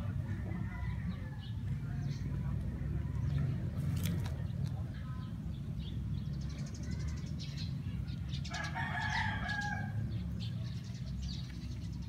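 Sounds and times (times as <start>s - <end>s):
rooster crowing: 8.5s - 10.0s.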